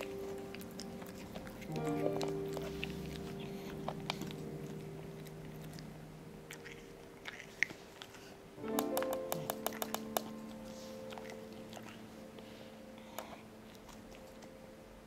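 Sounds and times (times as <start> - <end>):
cat chewing food: 0.0 - 14.6
background music with held notes: 0.0 - 15.0.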